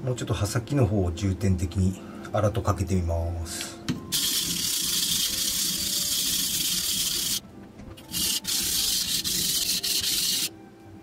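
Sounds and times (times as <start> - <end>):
knife scraping on whetstone: 8.1 - 10.5.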